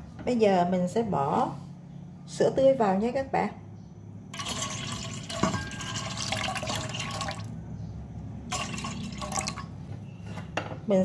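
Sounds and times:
milk pouring into container: 4.4 - 7.6, 8.5 - 9.7.

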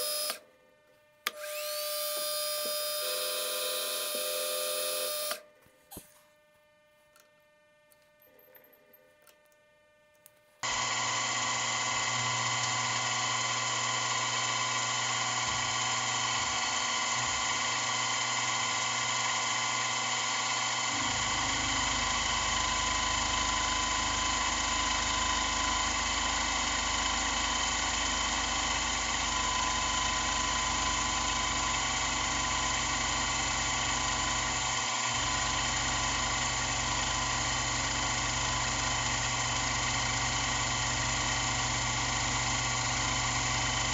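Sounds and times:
milling machine spindle whine: 0.0 - 0.4, 1.3 - 5.4, 10.6 - 43.9
cutter rumble cutting metal: 20.6 - 27.8.

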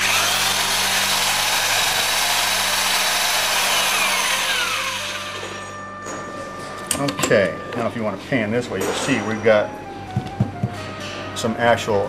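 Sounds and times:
power drill whining: 0.0 - 5.8.

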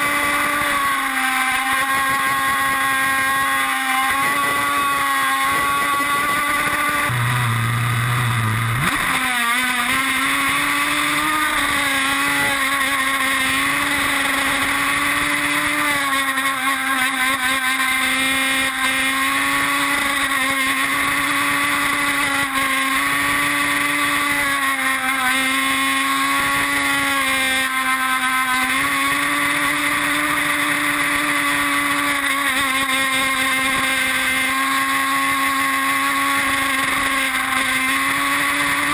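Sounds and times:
model boat engine whining: 0.0 - 38.9.

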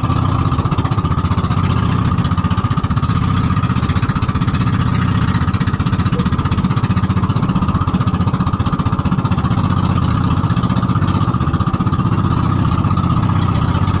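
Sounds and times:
boat engine chugging: 0.0 - 14.0
water splashing along hull: 0.0 - 14.0.

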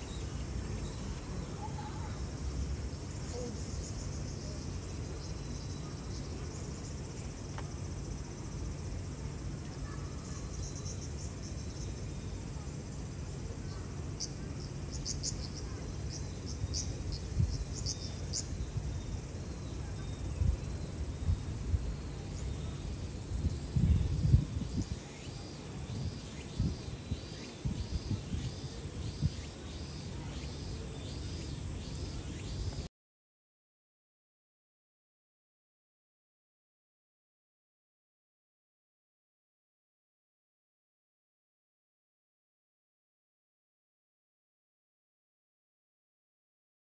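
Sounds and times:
insects chirping: 0.0 - 32.9.

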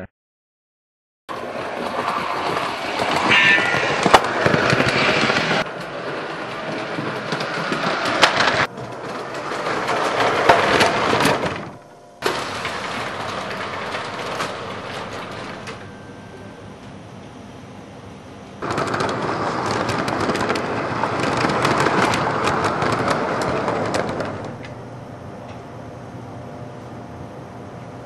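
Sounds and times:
toy trains rolling clatter: 1.3 - 16.3, 18.6 - 24.8
wheels clicking over rail joints: 1.3 - 17.0, 18.6 - 25.6.

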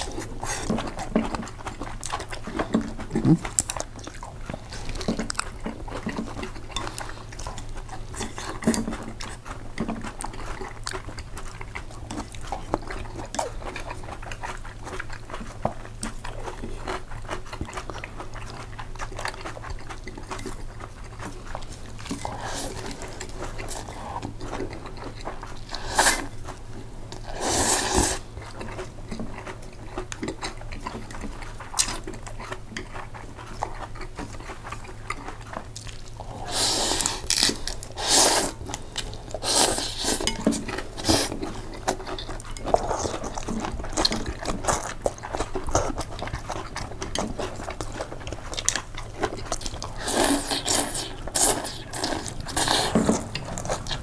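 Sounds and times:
chewing and biting: 0.0 - 54.0
cutlery scraping on a dish: 39.7 - 41.3.

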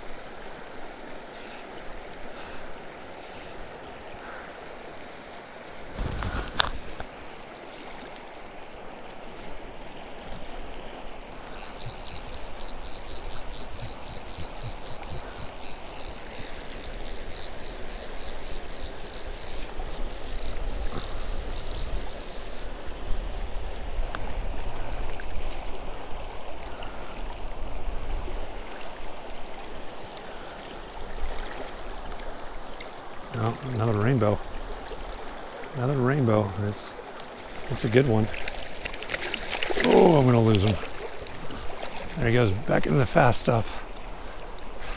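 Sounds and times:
river water over rocks: 0.0 - 44.9
rapid high-pitched ticking: 11.3 - 22.7.

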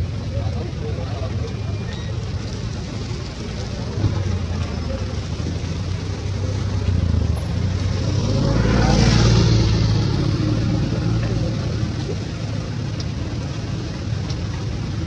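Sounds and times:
vehicle engine passing by: 4.1 - 12.9.

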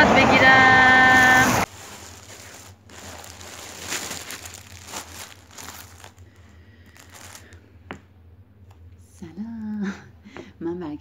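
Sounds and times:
plastic bag crinkling: 1.2 - 7.6.

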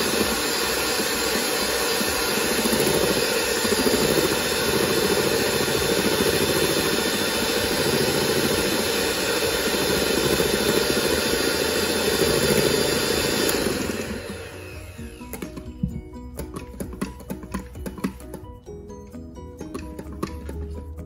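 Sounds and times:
electric hand mixer whipping cream: 0.0 - 18.5
background music: 13.8 - 21.0.

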